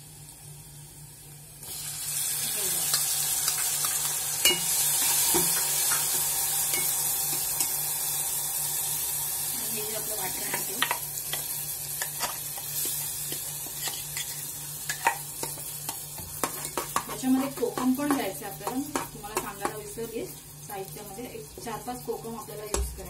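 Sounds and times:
shrimp sizzling in hot oil: 0:00.0 - 0:23.0
ladle scraping and knocking pot: 0:10.5 - 0:18.2.

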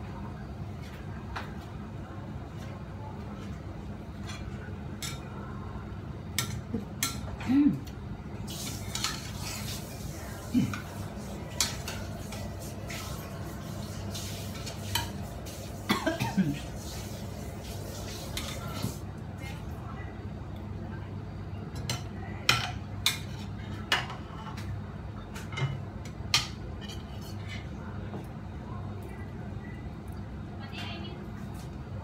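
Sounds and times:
spatula stirring food in a pan: 0:08.4 - 0:19.1.

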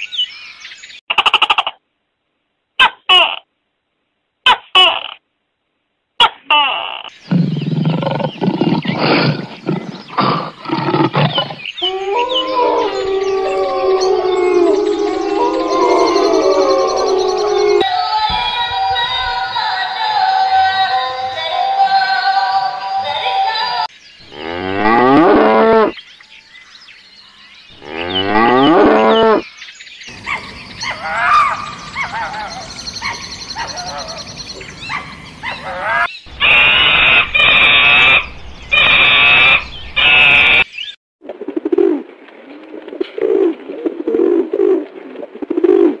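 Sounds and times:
animal calls rising and falling: 0:07.0 - 0:17.9, 0:30.2 - 0:40.7
pigeons cooing: 0:07.1 - 0:17.8
synthetic singing: 0:17.8 - 0:23.9.

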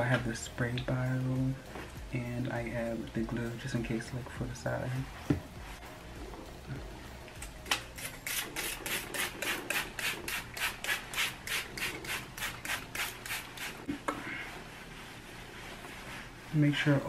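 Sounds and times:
spray bottle spritzing: 0:07.7 - 0:13.8.

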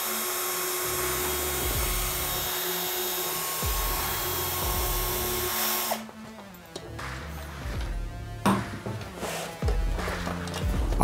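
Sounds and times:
cordless drill whining: 0:00.0 - 0:06.2.

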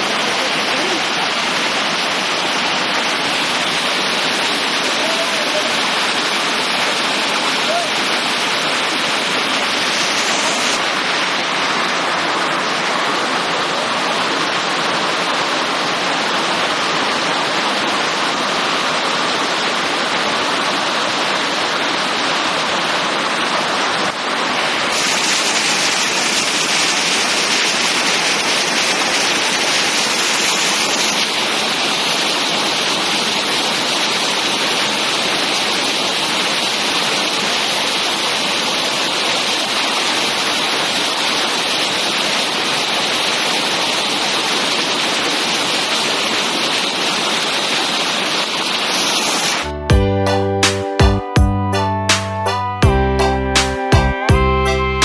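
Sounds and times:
heavy rain: 0:00.0 - 0:50.8.

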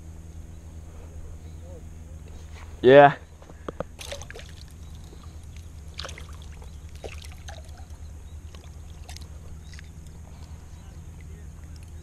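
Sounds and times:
water sloshing: 0:04.0 - 0:12.0.

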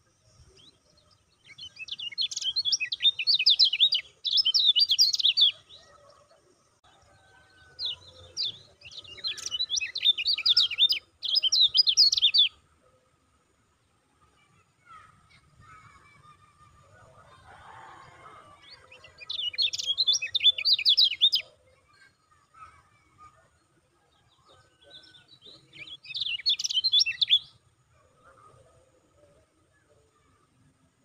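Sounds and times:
bird chattering song: 0:00.6 - 0:06.2, 0:07.8 - 0:12.7, 0:18.6 - 0:22.6, 0:24.4 - 0:27.6.

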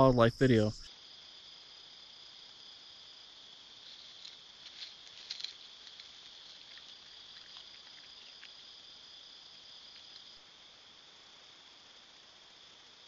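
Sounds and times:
chorus of night insects: 0:00.0 - 0:13.0
faint crackles and clicks: 0:03.9 - 0:08.7, 0:09.9 - 0:10.4.

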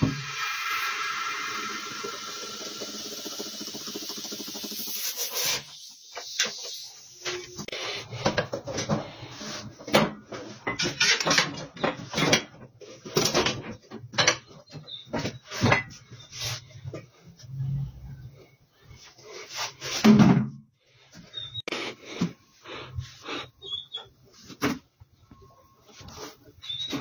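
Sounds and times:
compressed air tool hissing: 0:00.1 - 0:08.0.

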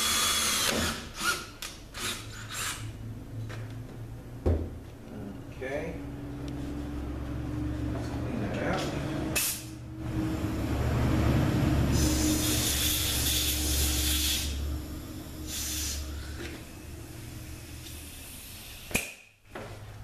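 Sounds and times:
compressed air blow gun hissing: 0:11.9 - 0:14.6, 0:15.4 - 0:16.3.

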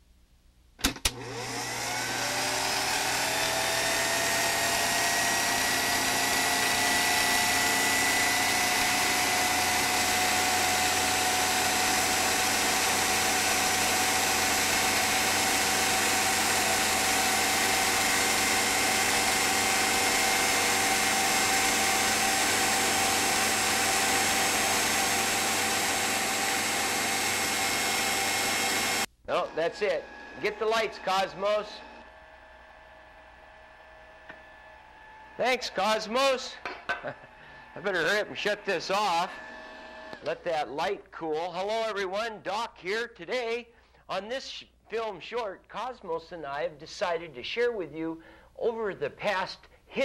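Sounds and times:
film projector motor whir: 0:00.9 - 0:29.1, 0:29.7 - 0:35.4, 0:39.1 - 0:40.3.

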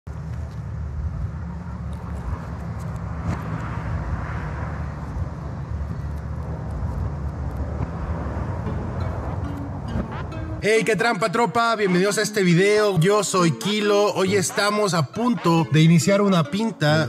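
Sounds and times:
low outdoor rumble: 0:00.1 - 0:10.6.

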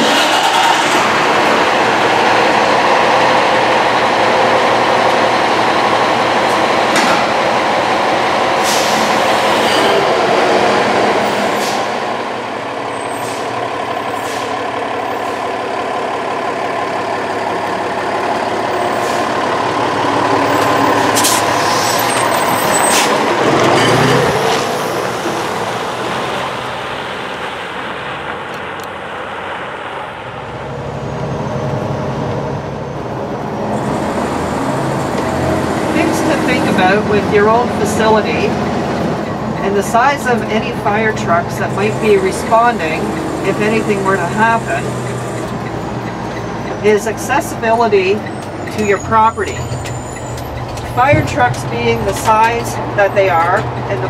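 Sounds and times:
diesel truck engine driving: 0:00.0 - 0:54.0
air brakes hissing: 0:08.6 - 0:10.1, 0:11.3 - 0:12.0, 0:13.1 - 0:14.6.

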